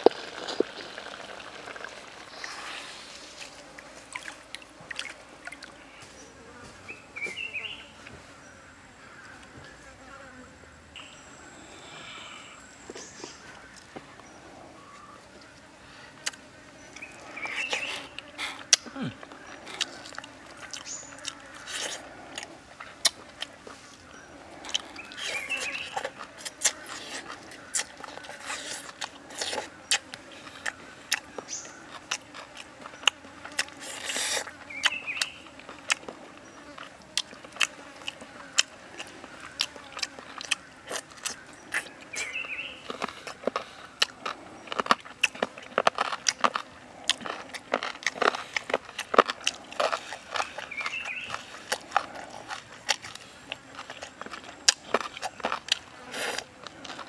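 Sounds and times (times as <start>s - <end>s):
person chewing and biting: 17.0s - 23.6s, 24.6s - 57.0s.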